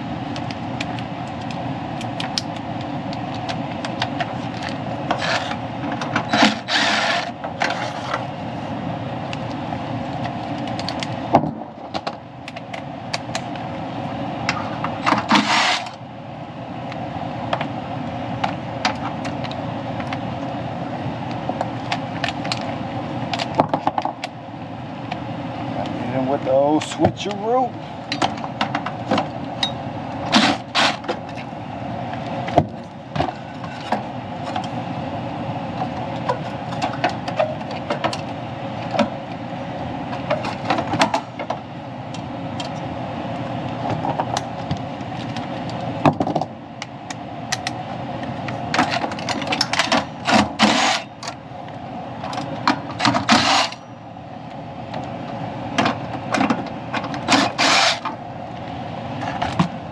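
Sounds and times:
steady hum: 0.0s - 59.9s
cordless driver bursts: 6.4s - 7.3s, 50.3s - 51.1s, 53.2s - 53.8s, 57.3s - 58.0s.

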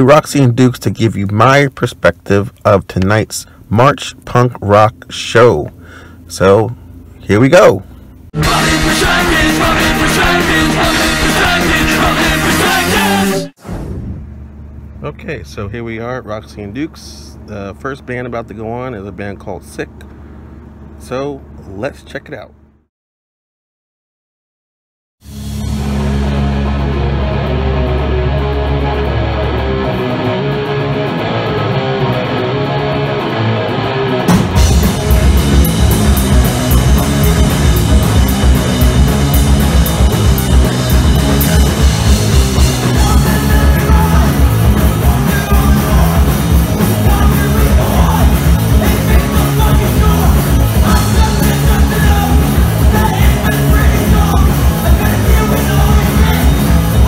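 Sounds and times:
bass guitar: 0.0s - 19.0s, 25.2s - 57.0s
distorted electric guitar: 8.4s - 13.6s, 25.2s - 57.0s
drum kit and cymbals: 8.4s - 13.9s, 25.2s - 33.2s, 33.8s - 57.0s.

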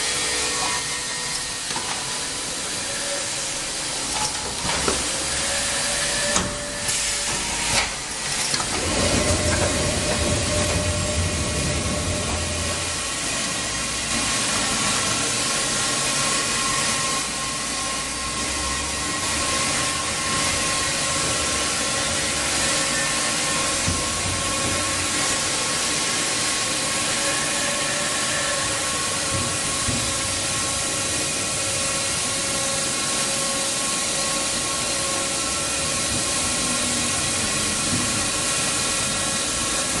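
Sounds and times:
milling machine hissing: 0.0s - 40.0s.

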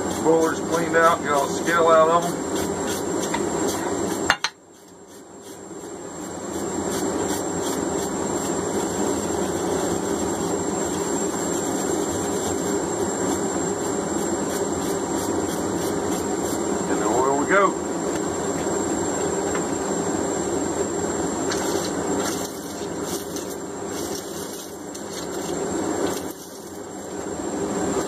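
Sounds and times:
wire brush scratching metal: 0.0s - 16.7s, 21.5s - 27.1s.

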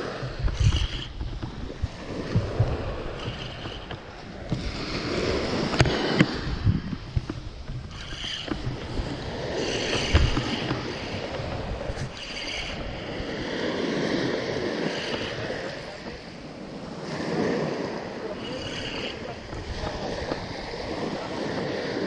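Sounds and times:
small waves washing on beach: 0.0s - 22.0s
wind buffeting microphone: 0.0s - 22.0s
fishing reel cranking: 0.2s - 1.4s, 2.9s - 4.1s, 7.7s - 16.1s, 18.4s - 20.5s.

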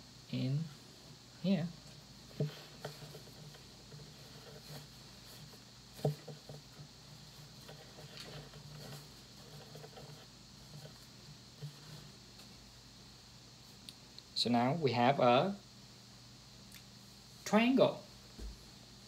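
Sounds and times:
cloth rustling: 2.0s - 12.6s.

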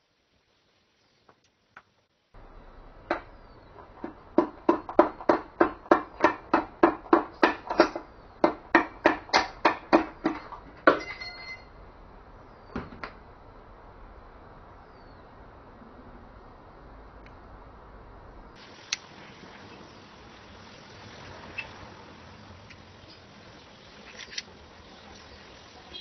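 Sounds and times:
sharp knocks: 3.0s - 11.4s
short ringing: 11.0s - 11.8s.

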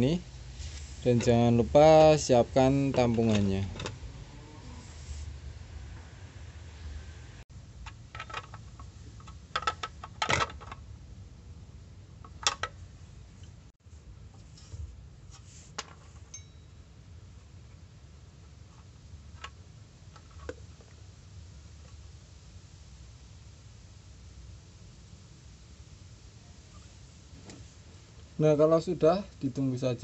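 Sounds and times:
steady low hum: 0.0s - 9.3s.

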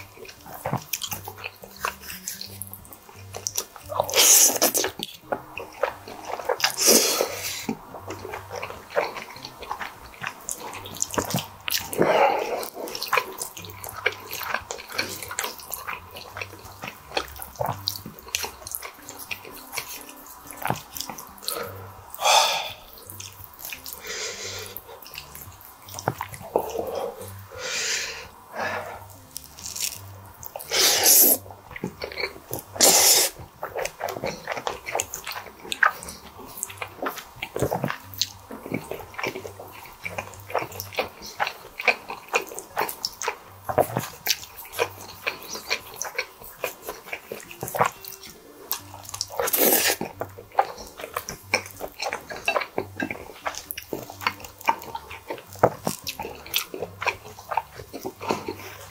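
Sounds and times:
mouth clicks: 0.0s - 58.9s
wet chewing: 0.0s - 58.9s
person slurping spaghetti: 3.4s - 5.1s, 5.7s - 18.9s, 21.0s - 48.0s, 48.6s - 58.9s.

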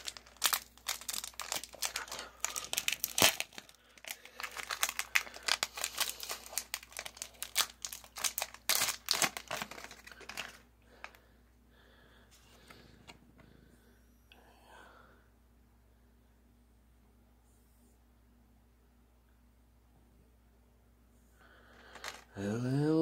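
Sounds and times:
foil wrapper crinkling and tearing: 0.0s - 11.2s.

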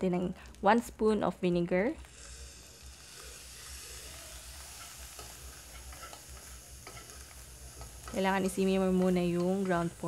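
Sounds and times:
meat sizzling in a wok: 2.0s - 10.0s
metal spoons scraping a pan: 3.0s - 10.0s.

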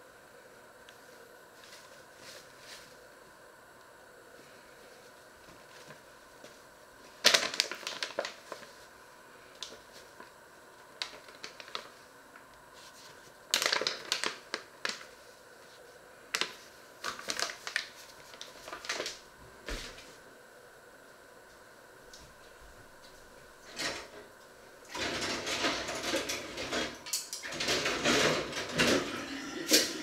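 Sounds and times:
paper bag crinkling: 7.0s - 8.9s, 10.9s - 12.1s, 12.7s - 15.2s, 16.3s - 19.3s.

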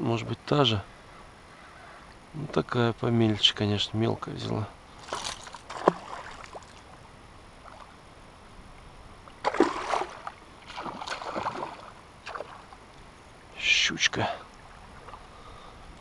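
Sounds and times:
fish splashing in water: 5.0s - 6.8s, 9.4s - 12.8s.

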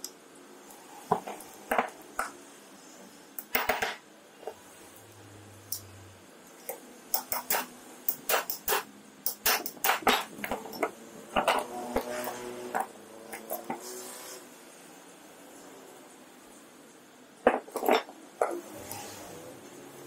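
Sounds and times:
metal parts knocking and clinking: 7.2s - 11.7s.

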